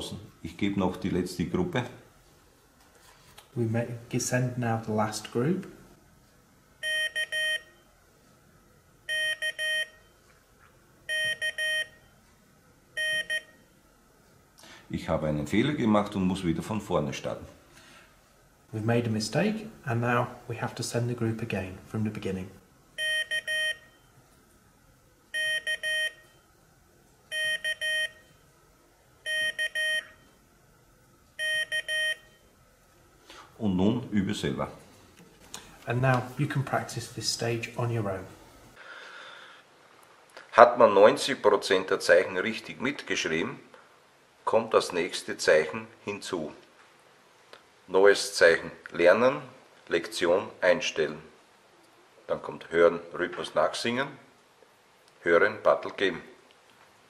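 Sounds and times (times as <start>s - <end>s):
morse code beeps: 6.8s - 7.7s, 9.1s - 10.2s, 11.1s - 12.0s, 13.0s - 13.6s, 23.0s - 24.1s, 25.4s - 26.3s, 27.3s - 28.3s, 29.3s - 30.2s, 31.4s - 32.4s.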